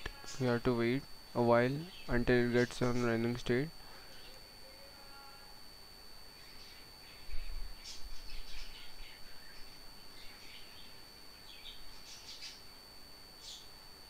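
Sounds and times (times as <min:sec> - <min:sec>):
high-pitched electrical whine: 0:00.0 - 0:14.0
birds chirping: 0:01.7 - 0:04.4, 0:06.4 - 0:12.7, 0:13.4 - 0:13.7.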